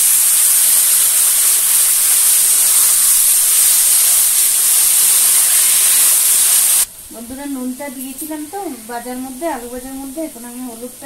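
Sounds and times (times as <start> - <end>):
potatoes sizzling in hot oil: 0.0 - 6.9.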